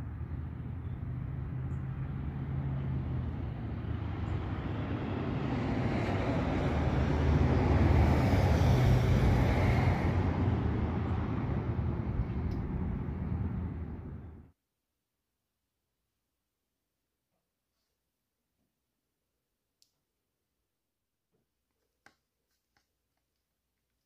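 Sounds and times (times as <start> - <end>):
motor vehicle passing: 0.0 - 14.5.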